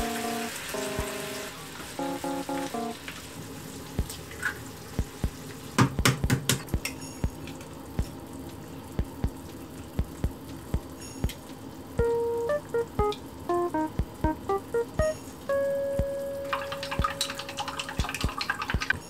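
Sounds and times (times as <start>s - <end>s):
background music thump: 0.0s - 3.0s, 12.0s - 17.4s
food sizzling in frying pan: 0.0s - 4.1s.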